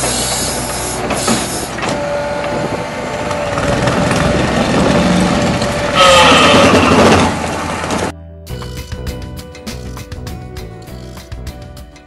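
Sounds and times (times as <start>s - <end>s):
hydraulic whine: 0.0s - 8.1s
heavy excavator running: 0.0s - 8.2s.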